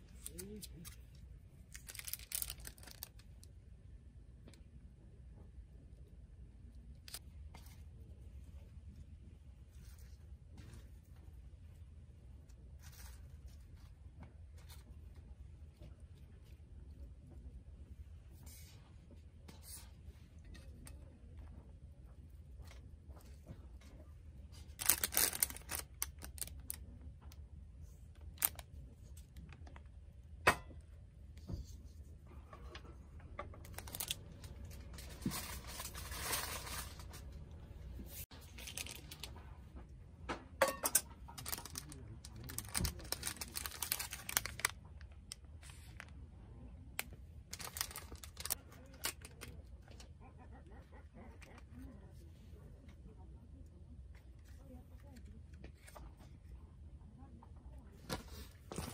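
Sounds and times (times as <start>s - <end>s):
handling small objects: 0.0s - 3.6s, 22.6s - 26.9s, 33.5s - 39.4s, 40.6s - 46.1s, 47.0s - 50.0s.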